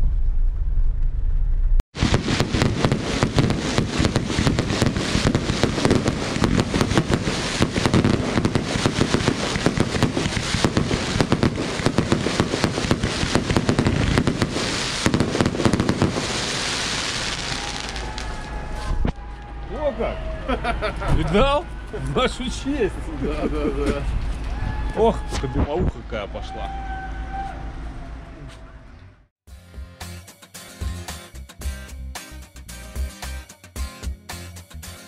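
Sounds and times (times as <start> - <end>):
car cabin road rumble: 0.0 - 19.6
fireworks bangs and crackles: 1.9 - 19.2.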